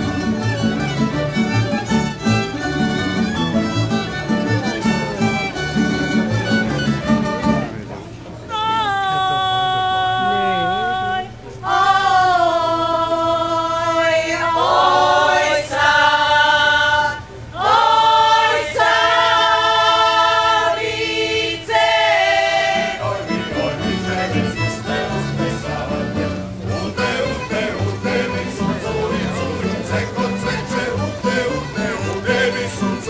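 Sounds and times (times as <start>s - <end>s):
women's choir singing: 10.4s - 33.0s.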